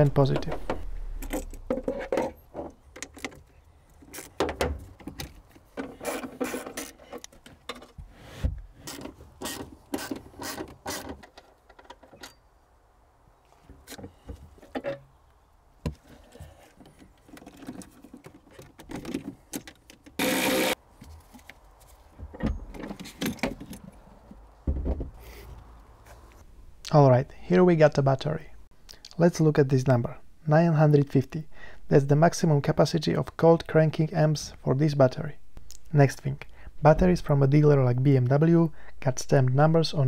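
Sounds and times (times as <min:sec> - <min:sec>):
cordless ratchet whirring: 0:20.2 - 0:20.8.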